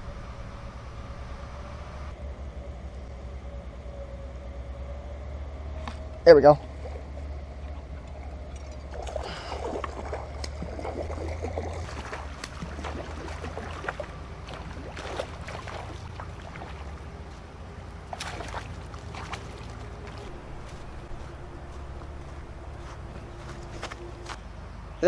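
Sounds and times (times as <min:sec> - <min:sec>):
fish splashing in water: 0:06.7 - 0:24.3.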